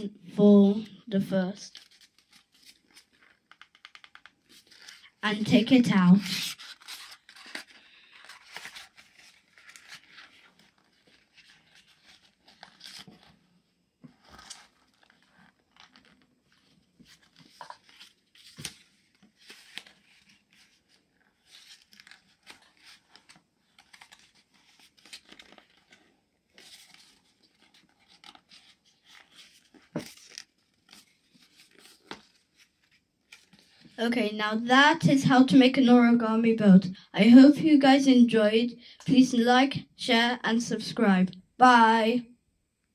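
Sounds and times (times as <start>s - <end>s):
paper rustling and crinkling: 1.7s - 5.2s, 6.0s - 34.0s.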